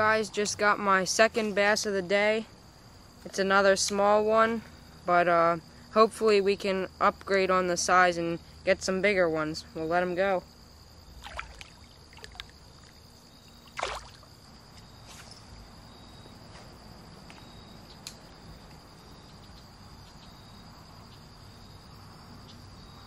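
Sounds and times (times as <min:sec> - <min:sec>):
high insect trill: 0:00.0 - 0:23.0
water sloshing: 0:11.1 - 0:14.3
fish splashing into water: 0:11.2 - 0:13.0, 0:13.6 - 0:14.3.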